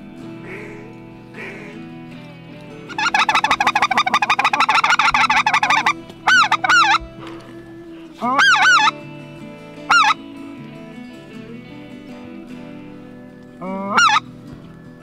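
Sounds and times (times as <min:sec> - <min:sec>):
goose call honks: 0:00.4 - 0:01.8, 0:02.9 - 0:07.4, 0:08.2 - 0:09.0, 0:09.9 - 0:10.2, 0:13.6 - 0:14.3
goose call clucking: 0:00.4 - 0:01.9, 0:02.9 - 0:07.6, 0:08.2 - 0:09.0, 0:09.9 - 0:10.3, 0:13.6 - 0:14.3.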